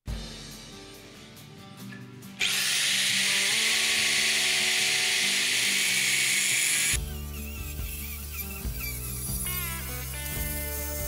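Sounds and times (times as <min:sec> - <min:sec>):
angle grinder cutting metal: 0:02.4 - 0:11.0.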